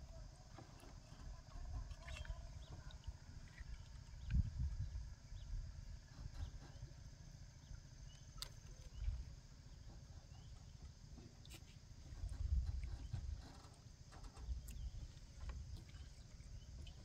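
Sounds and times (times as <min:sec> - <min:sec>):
wind buffeting microphone: 0:04.1 - 0:06.6, 0:12.1 - 0:13.5.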